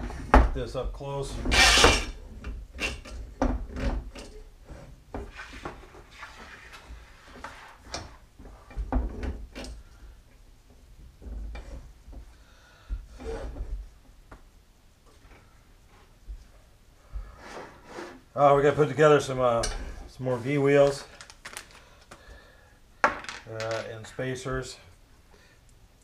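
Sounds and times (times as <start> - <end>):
knocks clicks and rubbing of parts: 0.0 - 14.5.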